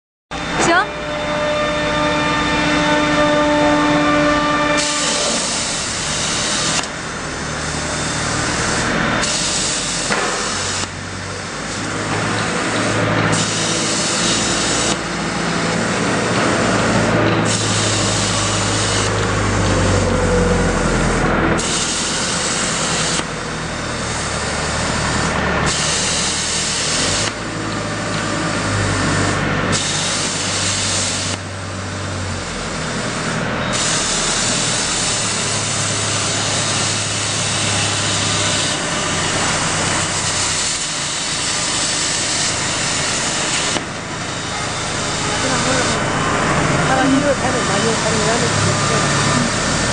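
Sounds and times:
plasma cutter hissing: 4.8s - 20.0s, 21.6s - 49.9s
multi-tone whine: 30.0s - 49.9s.

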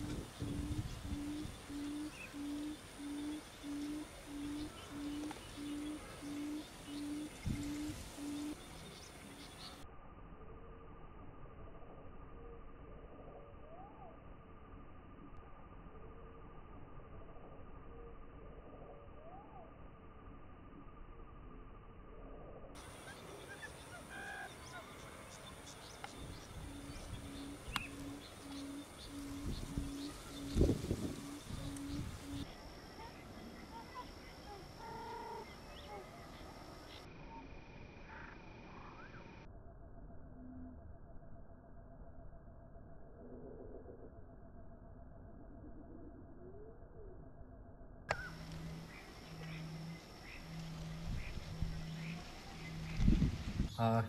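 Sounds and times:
bird low booming hoots: 0.0s - 8.6s, 22.8s - 37.4s, 48.1s - 53.4s.

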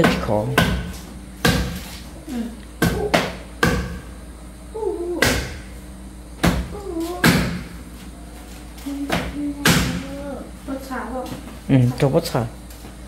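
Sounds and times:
knife chopping on cutting board: 0.0s - 1.8s, 2.8s - 4.0s.

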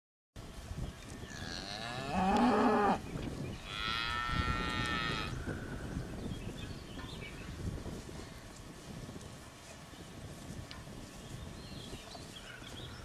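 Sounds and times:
cattle mooing: 1.3s - 3.0s.

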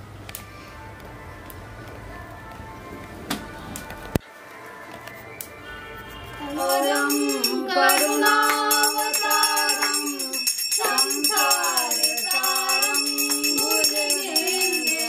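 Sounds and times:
person singing devotional song: 1.9s - 15.0s
bells jingling: 6.4s - 15.0s.

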